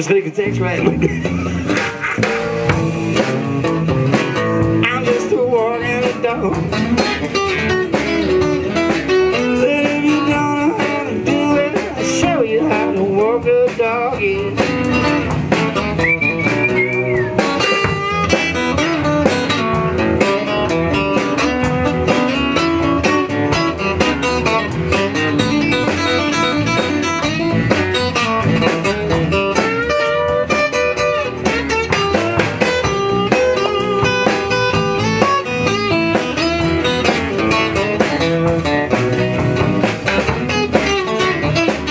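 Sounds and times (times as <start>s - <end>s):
acoustic guitars: 0.0s - 41.9s
drum kit beat: 0.0s - 41.9s.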